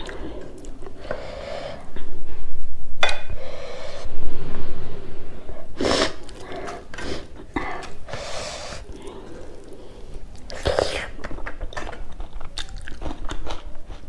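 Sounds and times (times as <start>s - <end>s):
sharp breath: 3.3s - 6.3s, 6.9s - 9.1s.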